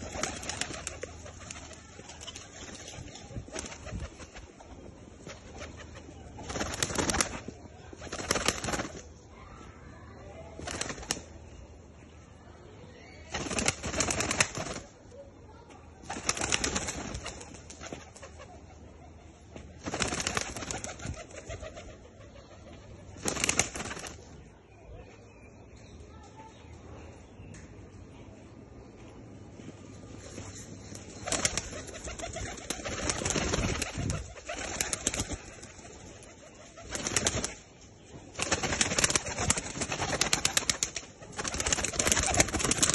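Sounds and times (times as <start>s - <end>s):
pigeon wings clattering: 0.0s - 4.6s, 5.2s - 9.0s, 10.6s - 11.3s, 13.3s - 15.0s, 16.0s - 18.6s, 19.6s - 22.0s, 23.1s - 24.3s, 30.2s - 37.6s, 38.3s - 42.9s.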